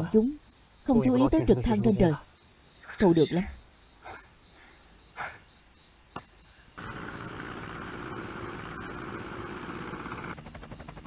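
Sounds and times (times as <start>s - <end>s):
crickets chirping: 0.0s - 11.0s
helicopter engine and rotor: 6.8s - 11.0s.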